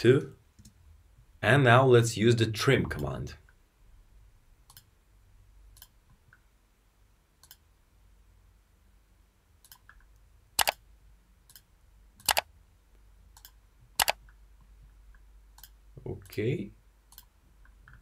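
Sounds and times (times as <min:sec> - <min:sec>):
computer mouse clicks: 0:04.6 - 0:04.9, 0:05.8 - 0:06.4, 0:07.4 - 0:07.6, 0:09.6 - 0:10.8, 0:11.5 - 0:12.5, 0:13.3 - 0:14.4, 0:15.6 - 0:16.4, 0:17.1 - 0:18.0
loud sharp clicks: 0:10.6 - 0:10.8, 0:11.5 - 0:12.5, 0:13.4 - 0:14.2.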